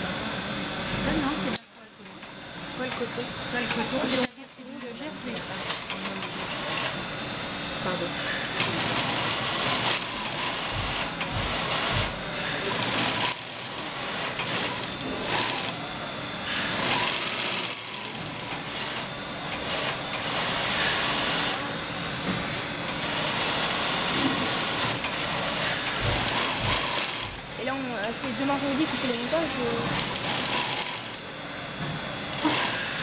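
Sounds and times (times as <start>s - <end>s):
industrial sewing machine stitching: 5.2s - 7.0s, 8.5s - 15.9s, 16.6s - 21.7s, 22.8s - 27.6s, 28.2s - 31.2s, 32.3s - 33.0s.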